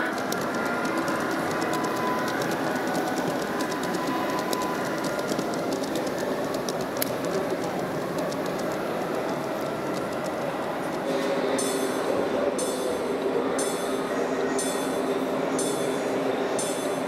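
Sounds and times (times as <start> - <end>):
model train running rumble: 0.0 - 11.7
model train wheels clicking on rails: 0.0 - 12.0.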